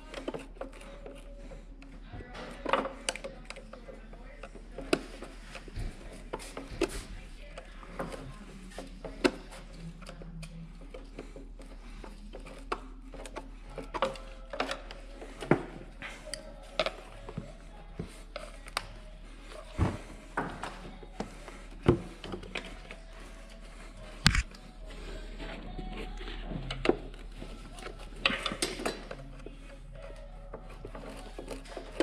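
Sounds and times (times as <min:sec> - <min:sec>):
screwdriver being handled: 0:21.1 - 0:24.7.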